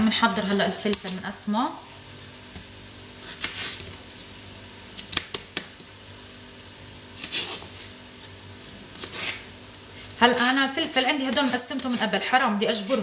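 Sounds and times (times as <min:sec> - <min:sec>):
frying pan sizzling: 0:00.0 - 0:13.0
knife slicing on cutting board: 0:09.0 - 0:09.4.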